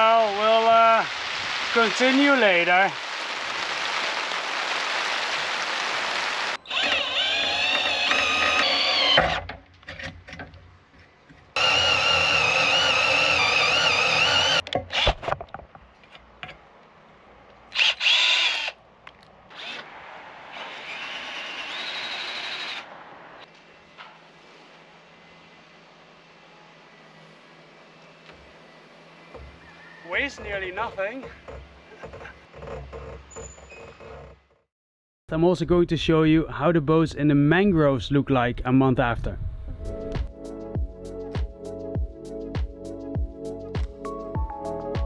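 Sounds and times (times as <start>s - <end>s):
power drill whining: 6.2s - 9.5s, 11.6s - 15.2s, 17.7s - 18.8s, 19.5s - 19.9s, 20.5s - 22.9s.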